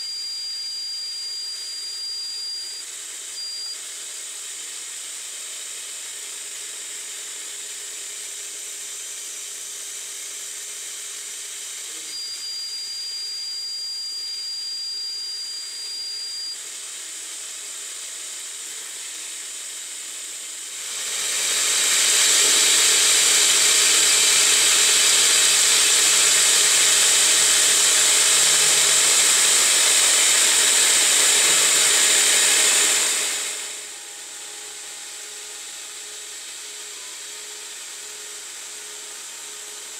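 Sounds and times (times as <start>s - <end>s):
thin high whine: 0.0s - 5.3s, 11.4s - 39.9s
lathe running: 18.4s - 39.7s.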